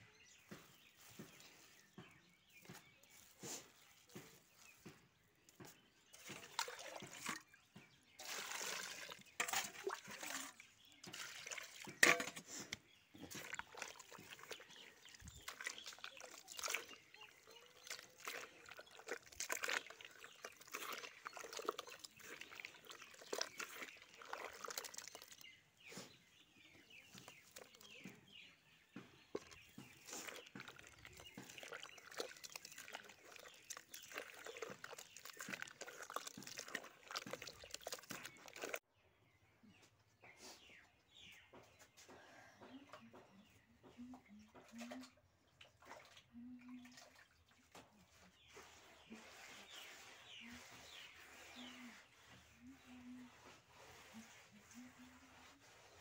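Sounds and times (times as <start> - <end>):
hand squelching slurry in bucket: 0.3 - 38.9, 44.6 - 56.0
wet splashes: 6.2 - 7.5, 8.2 - 12.2, 13.3 - 25.4, 29.3 - 38.8.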